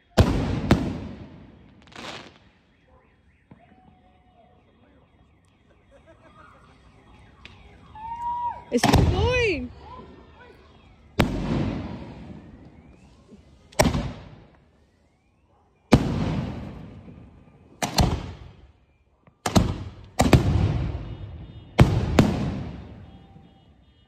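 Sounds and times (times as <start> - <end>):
firework bangs echoing: 0.0 - 4.0, 8.8 - 9.7, 11.2 - 13.0, 13.8 - 14.5, 15.9 - 18.6, 19.4 - 24.0.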